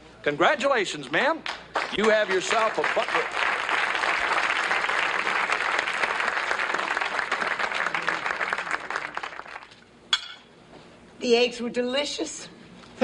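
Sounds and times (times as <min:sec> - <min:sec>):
audience applause: 0:01.7 - 0:09.8.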